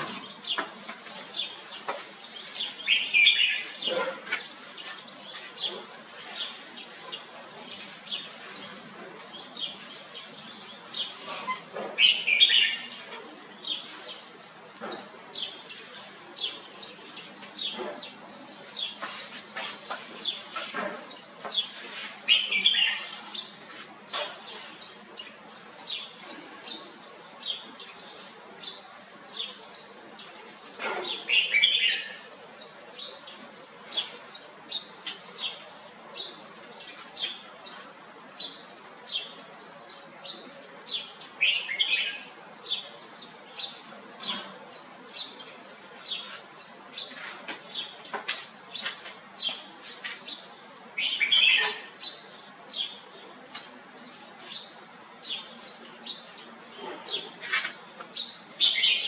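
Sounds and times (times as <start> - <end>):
bird high chirps: 43.2 - 59.0.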